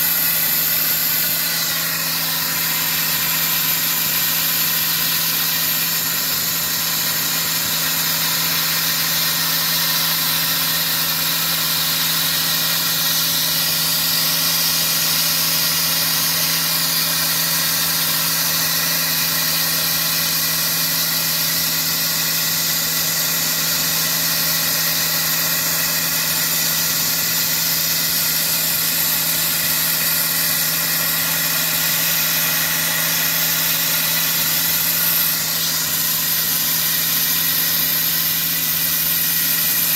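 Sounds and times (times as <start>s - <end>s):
sandblasting nozzle hiss: 0.0s - 39.9s.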